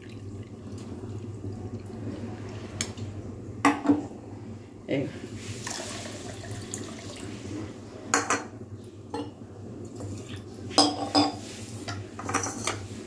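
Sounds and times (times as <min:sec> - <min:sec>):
water pouring into a metal pot: 0:00.0 - 0:01.9, 0:05.6 - 0:07.4.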